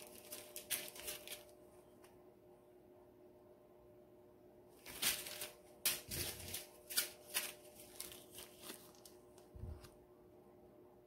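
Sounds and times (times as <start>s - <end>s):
plastic bags crinkling: 0.0s - 1.6s, 4.8s - 9.9s.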